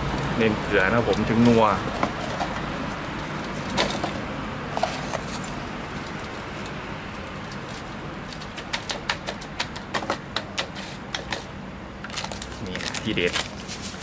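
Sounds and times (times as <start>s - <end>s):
sharp clicks and taps on metal: 8.3s - 11.4s.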